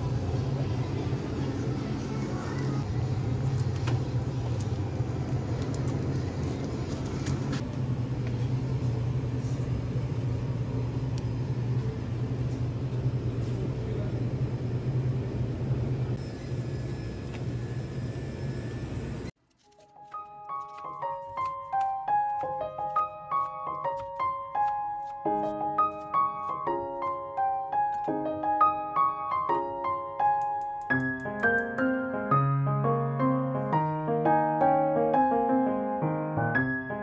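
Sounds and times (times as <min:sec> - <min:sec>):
refrigerator hum and hiss: 0:00.0 - 0:19.3.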